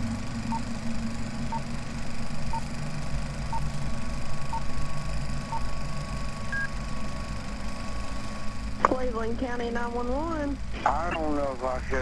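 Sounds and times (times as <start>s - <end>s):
low mechanical rumble: 0.0s - 12.0s
countdown beeps: 6.5s - 6.7s.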